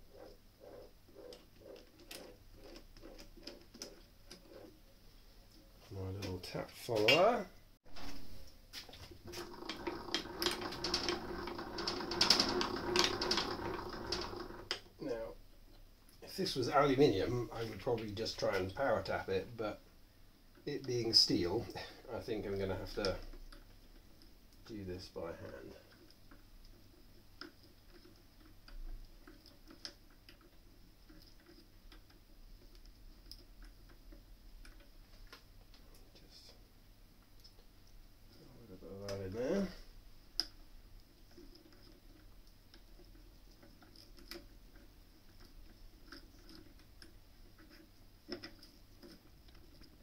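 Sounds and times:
light metallic clicks and rattles: 40.3s - 50.0s.

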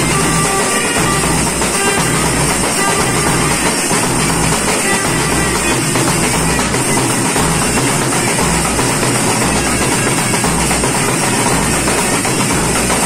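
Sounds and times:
clarinet melody: 0.0s - 7.2s
bass drums beating: 0.0s - 13.0s.

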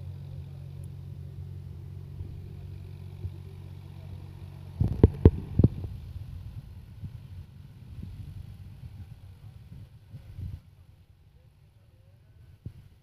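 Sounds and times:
tractor diesel engine running: 0.0s - 11.3s.

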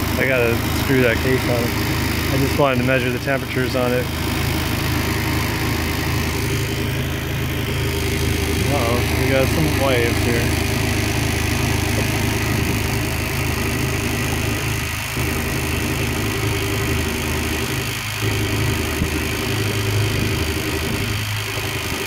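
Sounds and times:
electric boat motor humming: 0.0s - 22.0s.

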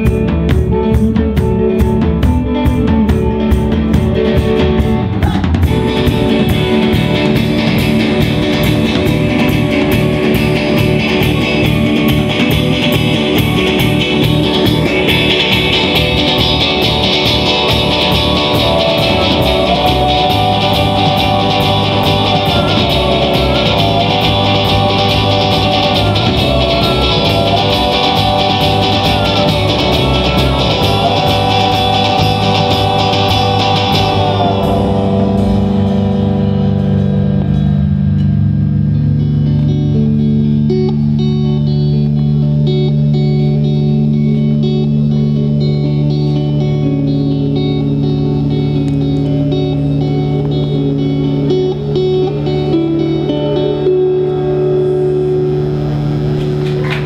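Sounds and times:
sliding held melody line: 0.0s - 38.2s
rock band playing: 0.0s - 57.0s
cymbal wash: 5.7s - 56.9s.

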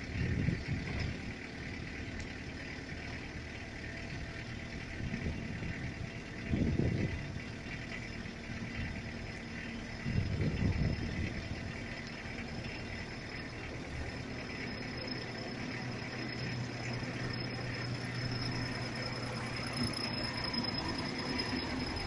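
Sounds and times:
engine idling: 0.0s - 22.0s
low engine rumbles: 0.0s - 22.0s.

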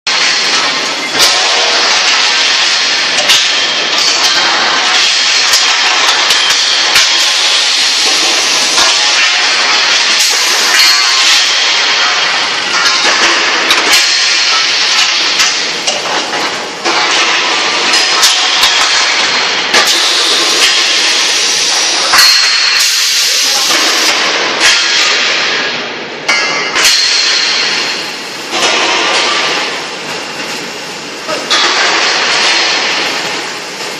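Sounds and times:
steel tubes clanking: 0.1s - 25.7s.

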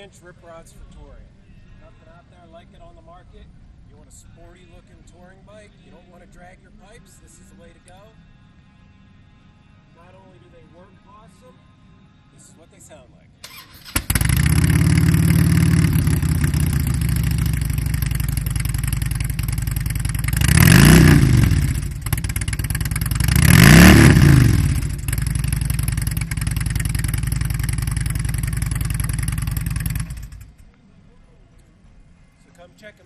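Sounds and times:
motorcycle engine idling and revving: 13.5s - 30.7s.

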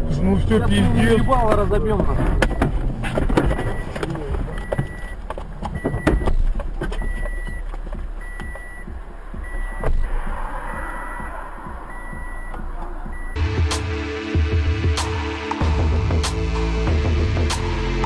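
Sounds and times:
low steady rumble: 0.0s - 13.4s
high electronic beep: 1.0s - 2.8s, 3.4s - 6.4s, 7.0s - 13.4s.

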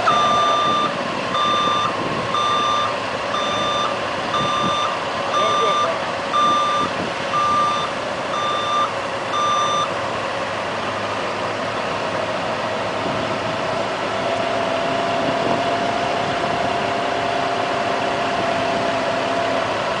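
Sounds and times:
vehicle backup alarm beeping: 0.0s - 10.0s
heavy engine running: 0.0s - 20.0s.

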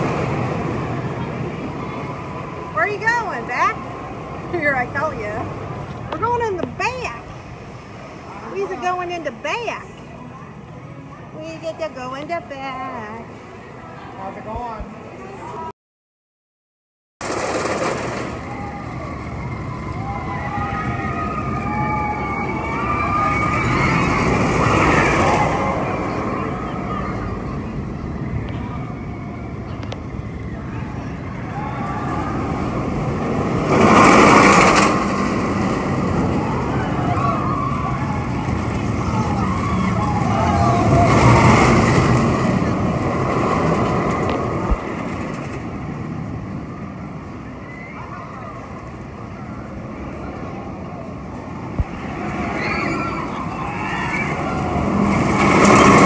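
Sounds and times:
roller coaster rumbling and whining: 0.0s - 15.7s, 17.2s - 56.0s.

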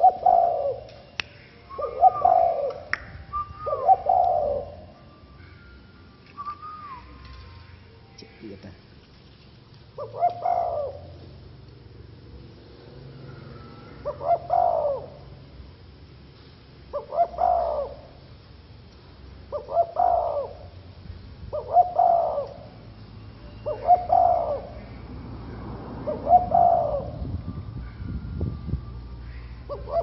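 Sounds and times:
dove cooing: 0.0s - 0.9s, 1.7s - 5.8s, 9.9s - 11.4s, 13.0s - 15.5s, 16.9s - 18.3s, 19.5s - 20.8s, 21.5s - 22.8s, 23.6s - 25.1s, 26.0s - 28.0s, 29.3s - 30.0s.

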